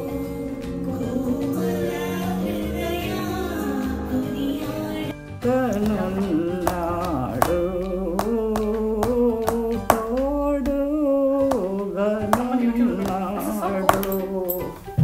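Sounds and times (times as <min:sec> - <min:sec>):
woman singing slowly: 0:00.0 - 0:07.9, 0:09.0 - 0:14.8
hands tapping tabletop: 0:05.8 - 0:14.8.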